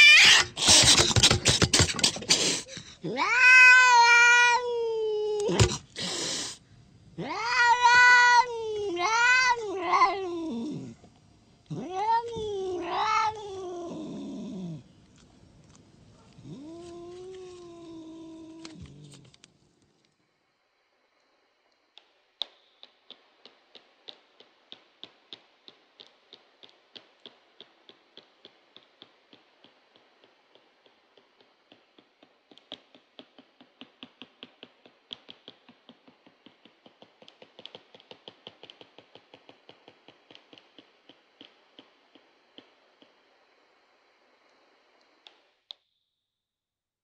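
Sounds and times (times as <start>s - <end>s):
sharp rhythmic clicks: 22.0s - 43.2s.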